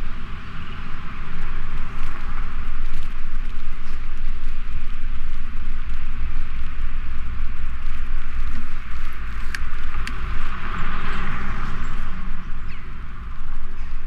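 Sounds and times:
bicycle tyres hissing: 0.0 - 14.0
street noise: 0.0 - 14.0
wind rumbling on microphone: 0.0 - 14.0.

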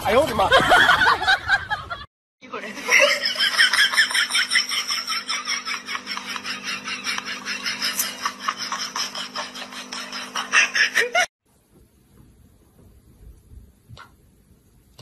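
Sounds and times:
steady low hum: 2.7 - 15.0
person laughing: 2.8 - 11.3.

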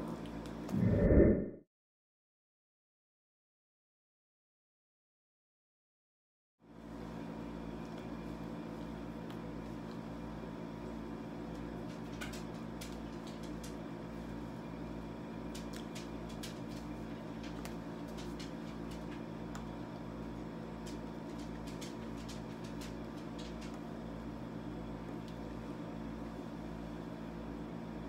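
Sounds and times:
low room hum: 6.6 - 28.0.

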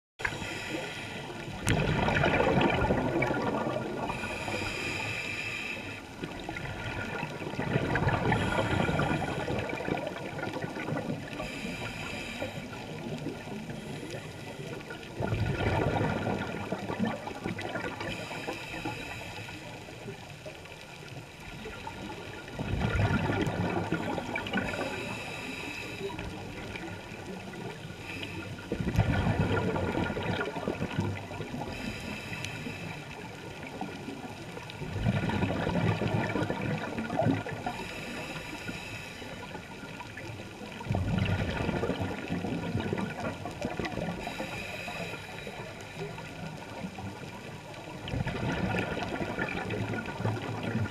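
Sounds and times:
hissing regulator inhale: 0.2 - 1.7, 4.1 - 6.5, 8.3 - 9.8, 11.2 - 15.0, 18.0 - 20.1, 24.2 - 28.8, 31.6 - 34.0, 37.6 - 39.8, 44.2 - 46.5
gurgling exhaled bubbles: 1.4 - 5.0, 6.2 - 18.6, 21.5 - 32.4, 33.2 - 38.4, 39.4 - 44.6, 45.6 - 50.9.

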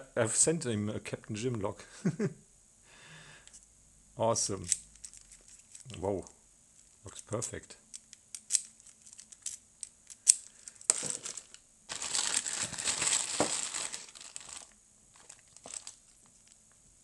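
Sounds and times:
plastic bag crinkling: 10.4 - 16.6.

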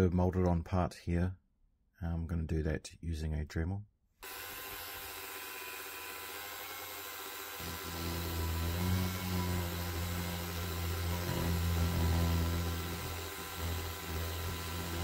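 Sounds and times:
rotary tool grinding plastic: 4.2 - 15.0.

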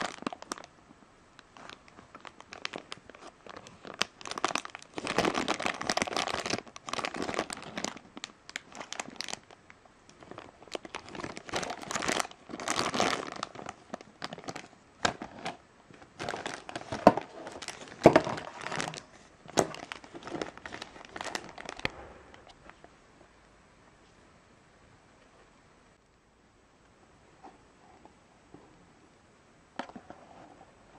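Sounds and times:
plastic bag crinkling: 0.0 - 0.7, 1.4 - 22.8.

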